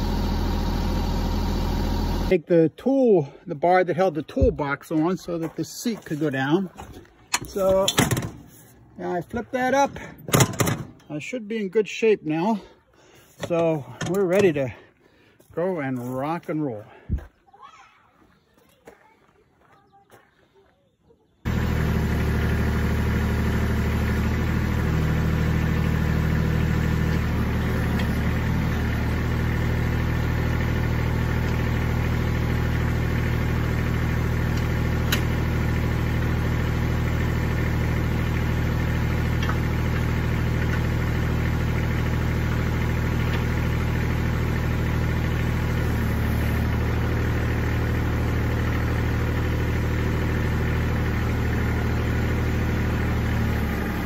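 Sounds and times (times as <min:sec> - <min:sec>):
diesel tractor idling: 0:00.0 - 0:02.4, 0:21.4 - 0:54.0.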